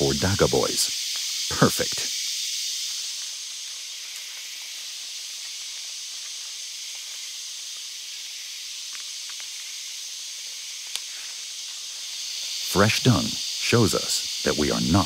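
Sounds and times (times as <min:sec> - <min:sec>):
cicadas droning: 0:00.0 - 0:15.0
faint clicks: 0:10.8 - 0:11.2.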